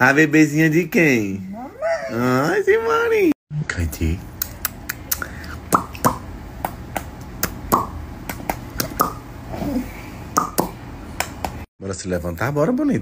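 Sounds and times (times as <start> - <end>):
lip-smacking kisses: 4.4 - 6.2, 6.9 - 9.2.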